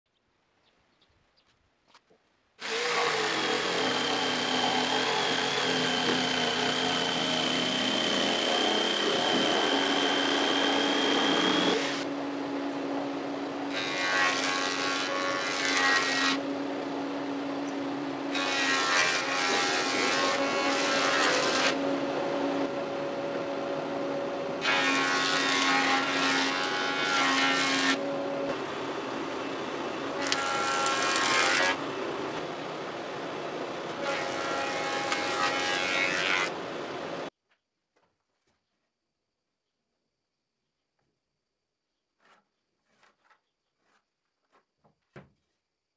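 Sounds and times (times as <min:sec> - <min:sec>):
tool cutting into wood: 0:02.6 - 0:12.1, 0:30.2 - 0:31.8
power tool whining: 0:02.6 - 0:32.9.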